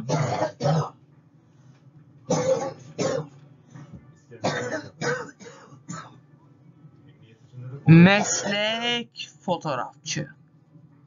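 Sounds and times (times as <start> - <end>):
person coughing: 0.0 - 1.0, 2.3 - 3.4, 4.4 - 6.2, 8.2 - 8.7.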